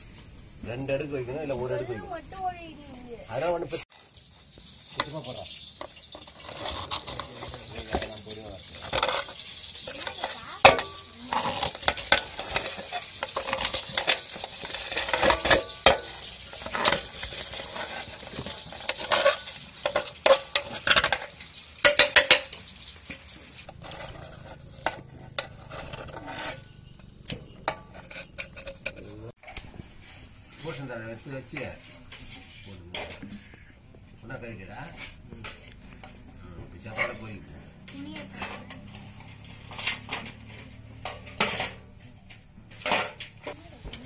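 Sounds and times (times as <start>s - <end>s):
knife scraping metal plate: 5.8s - 29.6s
metal clinking on metal: 7.1s - 29.3s.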